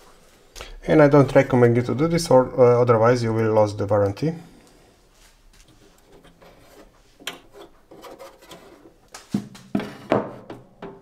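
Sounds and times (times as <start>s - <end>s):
sheet metal scraping: 5.8s - 9.0s
metal knocks: 9.7s - 11.0s.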